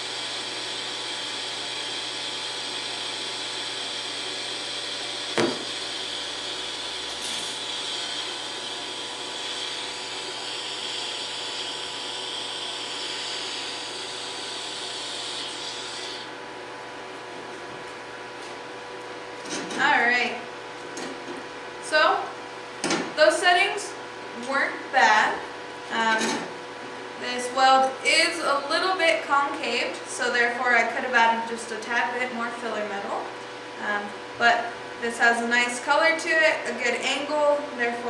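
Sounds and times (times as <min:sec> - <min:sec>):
welding arc hissing: 0:02.2 - 0:16.3.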